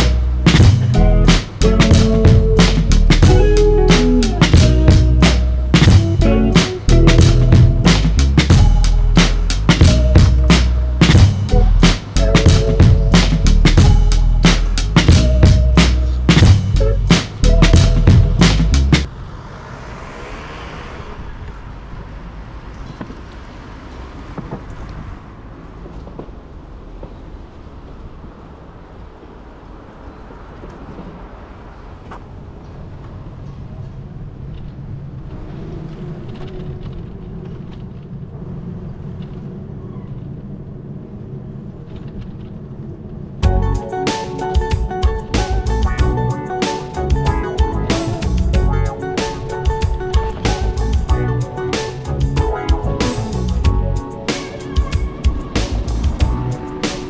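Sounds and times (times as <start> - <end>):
music with heavy beat: 0.0 - 19.1, 43.4 - 57.0
tyre noise: 0.0 - 19.2, 43.4 - 57.0
traffic rumble: 0.0 - 57.0.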